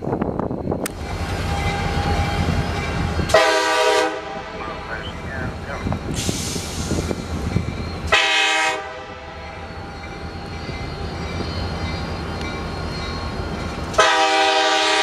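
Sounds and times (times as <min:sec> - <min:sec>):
train rumbling along track: 0:00.0 - 0:15.0
locomotive air horn blast: 0:03.3 - 0:04.5, 0:08.1 - 0:09.3, 0:14.0 - 0:15.0.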